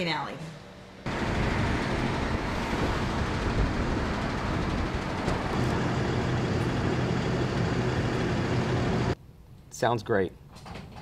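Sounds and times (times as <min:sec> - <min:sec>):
road noise: 0:00.0 - 0:09.2
vehicle engine running: 0:01.1 - 0:09.2.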